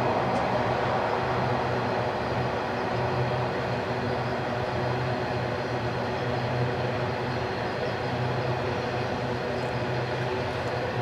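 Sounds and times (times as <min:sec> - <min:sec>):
constant low hum: 0:00.0 - 0:11.0
train wheels rumbling on rails: 0:00.0 - 0:11.0.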